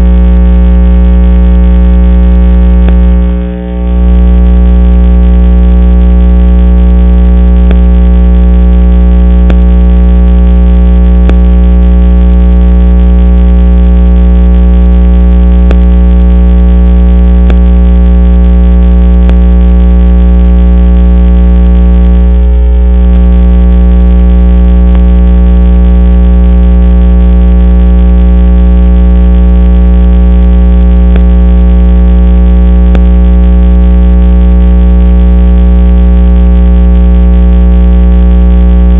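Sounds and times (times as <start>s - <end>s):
electrical buzz: 0.0s - 38.9s.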